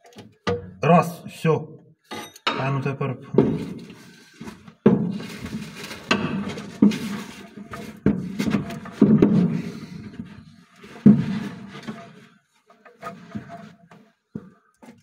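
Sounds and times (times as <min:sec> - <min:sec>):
dull metal knocks: 0:00.4 - 0:00.8.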